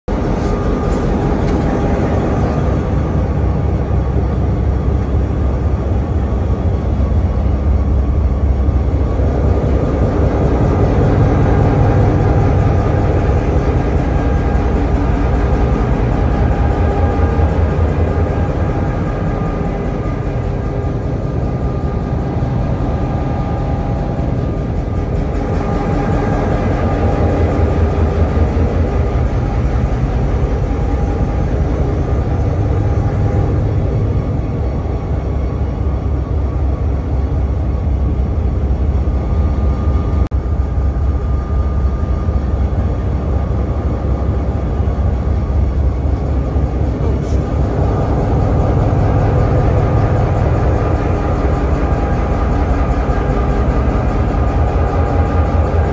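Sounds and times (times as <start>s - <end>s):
locomotive engines rumbling: 0.1s - 55.9s.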